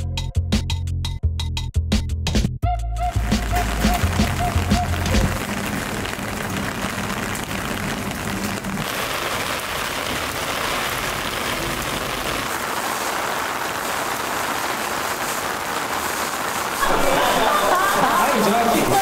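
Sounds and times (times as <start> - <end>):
rain splashing on pavement: 3.1 - 19.0.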